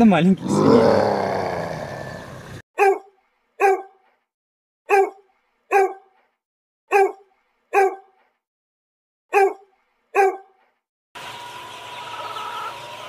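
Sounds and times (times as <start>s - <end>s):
roar: 0.4s - 2.6s
dog barking: 2.8s - 4.1s, 4.9s - 6.2s, 6.9s - 8.2s, 9.3s - 10.6s.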